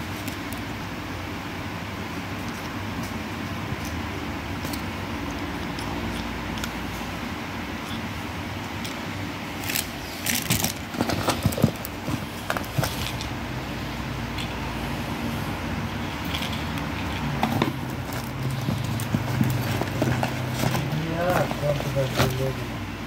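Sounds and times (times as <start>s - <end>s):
steady low hum: 0.0s - 23.0s
plastic packaging rustling: 9.6s - 13.4s, 16.3s - 22.7s.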